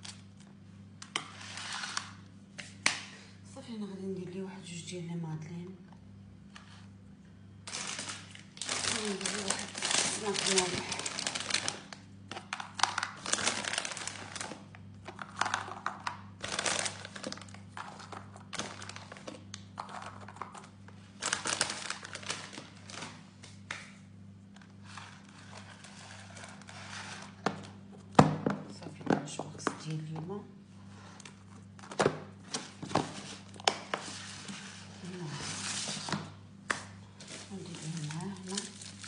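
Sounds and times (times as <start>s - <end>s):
snack packet crinkling: 7.7s - 23.9s, 37.2s - 39.0s.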